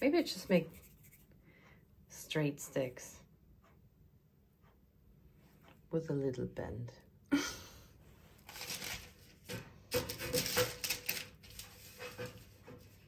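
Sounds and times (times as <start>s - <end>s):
plastic wrap rustling: 8.4s - 12.6s.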